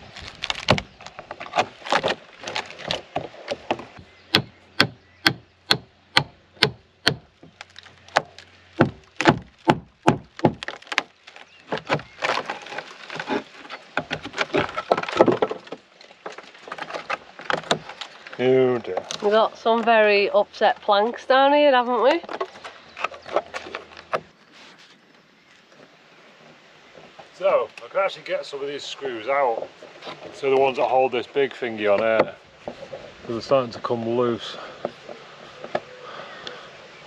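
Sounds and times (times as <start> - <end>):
wood cracking and splintering: 0.0 - 24.4.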